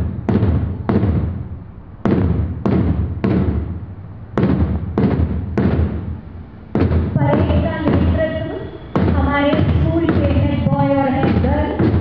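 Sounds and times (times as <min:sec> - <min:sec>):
bass drum booming strokes: 0:00.0 - 0:08.3.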